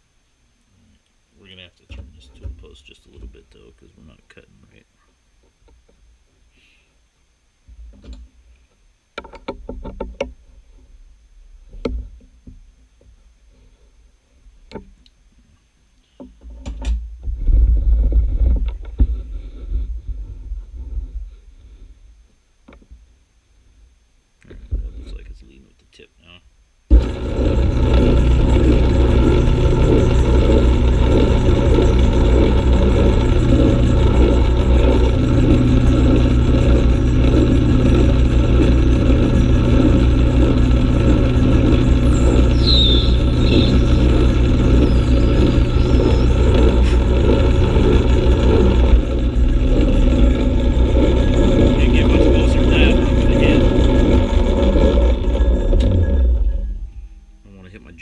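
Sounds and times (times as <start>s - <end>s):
metal lathe running: 26.9s - 57.0s.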